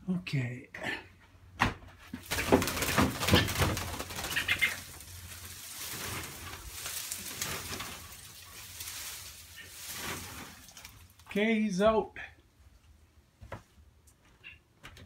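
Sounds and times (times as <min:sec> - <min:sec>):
shrub branches rustling: 0:02.1 - 0:11.5.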